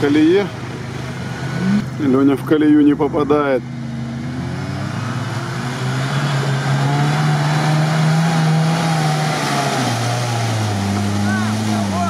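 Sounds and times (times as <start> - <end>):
car engine pulling under load: 0.0 - 12.0.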